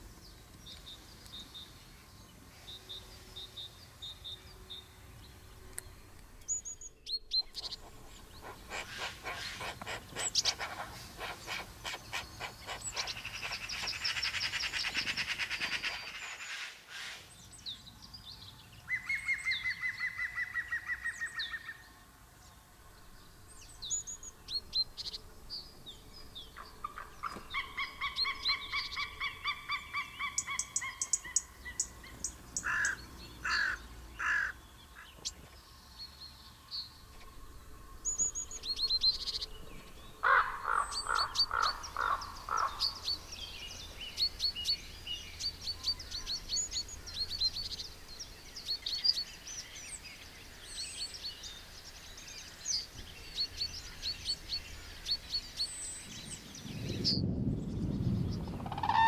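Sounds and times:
songbirds chirping and singing: 0.0s - 59.0s
harsh repeated bird calls: 7.2s - 17.3s, 26.6s - 35.2s, 40.2s - 43.3s, 58.4s - 59.0s.

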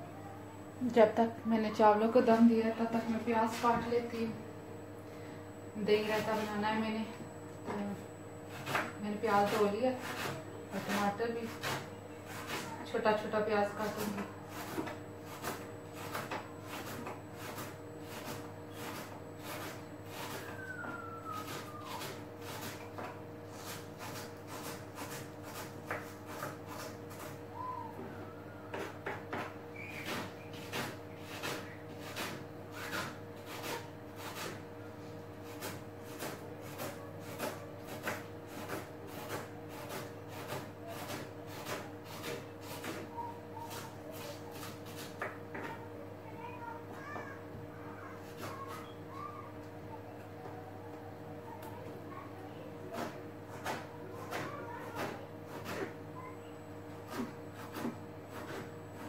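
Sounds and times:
knife chopping on cutting board: 22.0s - 27.4s, 35.4s - 43.1s.

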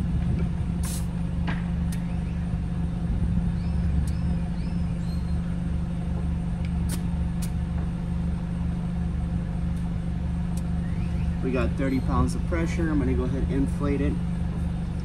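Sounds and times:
car engine idling: 0.0s - 15.0s.

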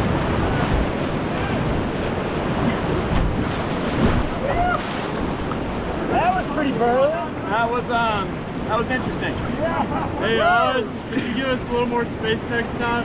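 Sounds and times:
wind on microphone: 0.0s - 6.0s
whitewater rapids rushing: 0.0s - 13.0s.

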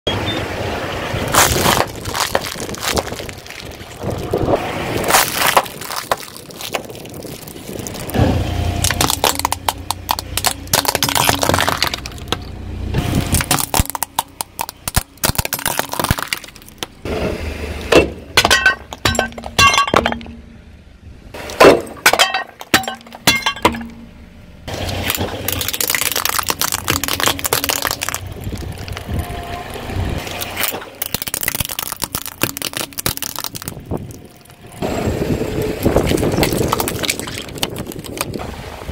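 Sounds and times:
tyre crushing brittle objects: 1.3s - 8.2s, 8.8s - 16.9s, 24.8s - 29.2s, 30.2s - 34.7s, 35.8s - 38.4s.

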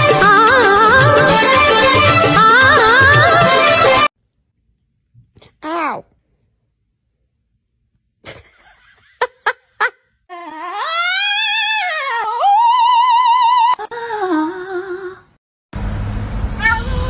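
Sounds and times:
dog howling: 10.3s - 13.8s
small dog yelping: 16.6s - 17.0s.

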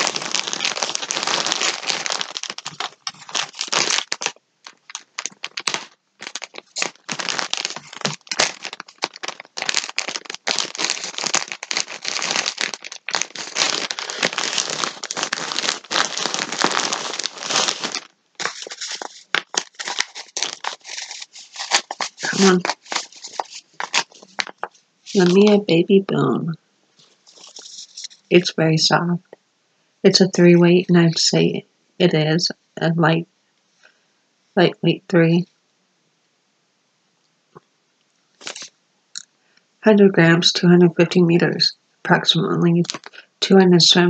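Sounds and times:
plastic wrapping crinkling: 0.0s - 25.7s, 27.0s - 28.3s, 38.4s - 38.8s, 42.8s - 43.3s.

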